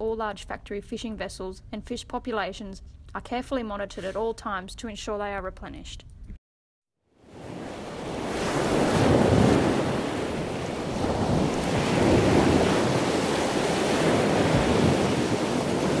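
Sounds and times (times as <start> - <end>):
ocean waves washing in: 7.2 - 16.0.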